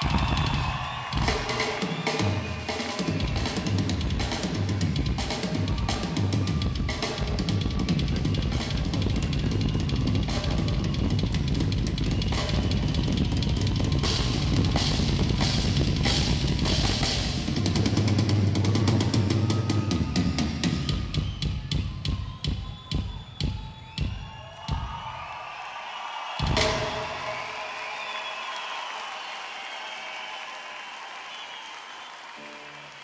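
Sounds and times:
drum kit solo: 0.0 - 25.0, 26.4 - 27.7.

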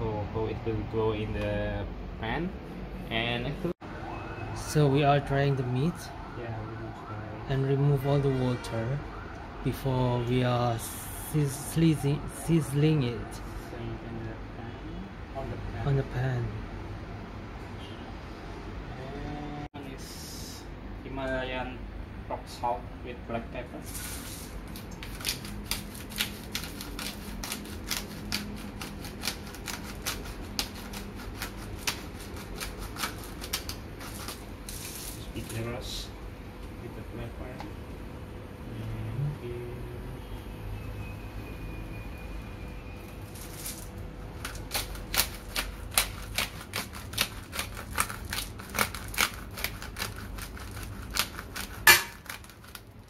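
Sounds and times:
salt grinder crunching and clicking: 24.8 - 34.4, 44.4 - 52.9.

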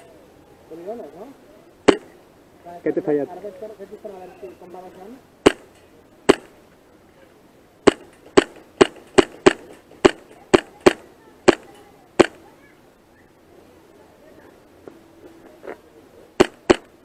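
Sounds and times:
airsoft pistol shots: 1.9 - 2.1, 5.4 - 5.7, 6.3 - 6.6, 7.8 - 12.4, 16.4 - 17.0.

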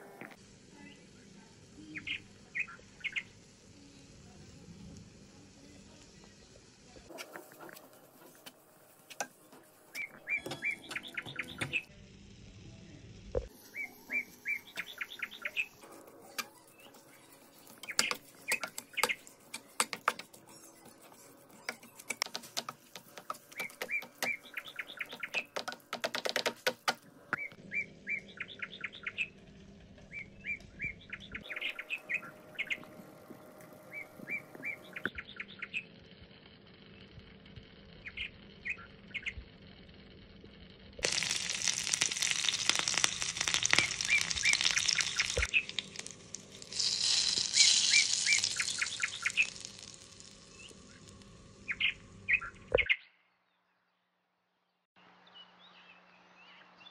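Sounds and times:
small birds chirping: 1.8 - 4.0, 9.9 - 11.9, 13.6 - 29.4, 30.0 - 35.9, 38.0 - 39.5, 41.0 - 53.7
spatula clacking in a pan: 16.3 - 20.9, 21.5 - 27.0
leaves sizzling in hot oil: 41.0 - 51.7.

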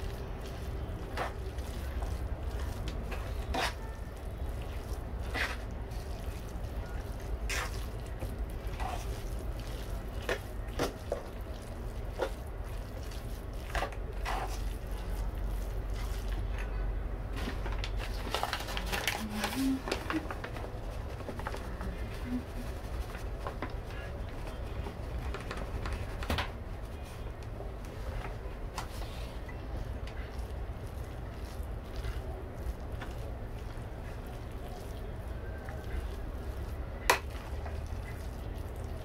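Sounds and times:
hand squishing dough: 0.0 - 39.0
paper bag rustling: 17.3 - 27.2.

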